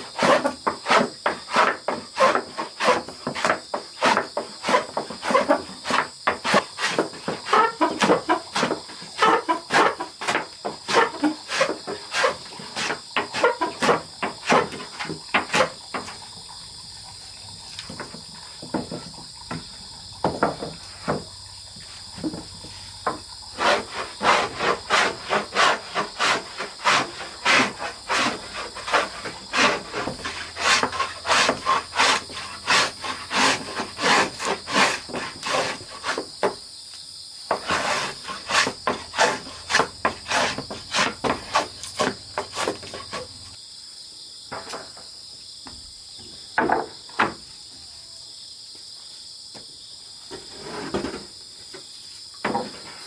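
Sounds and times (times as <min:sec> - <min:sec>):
hand plane shaving wood: 0:00.0 - 0:15.8, 0:23.6 - 0:36.3, 0:37.5 - 0:43.3
high insect drone: 0:00.0 - 0:53.0
knocks: 0:20.2 - 0:21.3.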